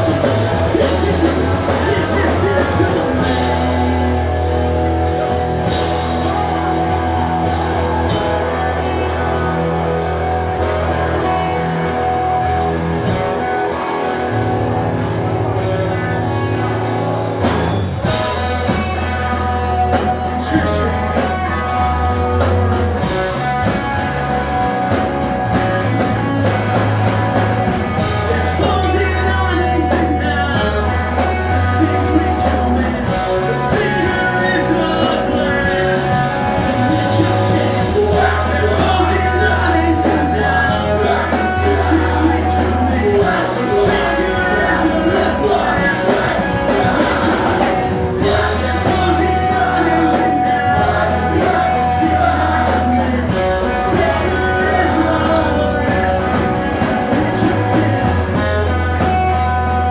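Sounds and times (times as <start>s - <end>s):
person singing: 0.0s - 12.6s, 28.0s - 59.9s
bass guitar: 0.0s - 59.9s
distorted electric guitars: 0.0s - 59.9s
drum kit: 0.0s - 59.9s.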